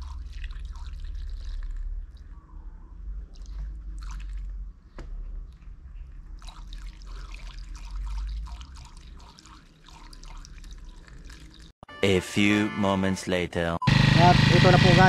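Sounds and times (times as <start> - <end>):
gasoline trickling into tank: 0.0 - 2.2, 6.2 - 11.8
low rumble: 0.0 - 6.4.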